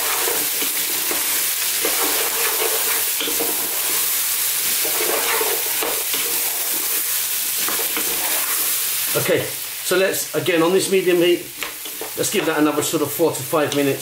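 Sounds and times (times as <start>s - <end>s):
wooden spatula scraping a pan: 0.0s - 8.8s
vegetables sizzling in a saucepan: 0.0s - 14.0s.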